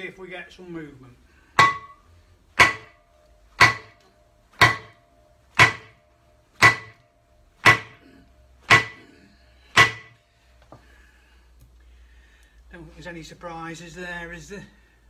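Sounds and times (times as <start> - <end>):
sledgehammer striking metal hub: 1.6 - 10.2.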